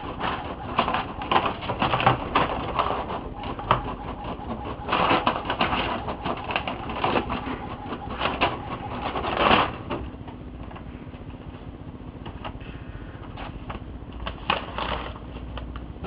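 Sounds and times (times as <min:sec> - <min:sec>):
printer whirring and clicking: 0:00.0 - 0:10.8.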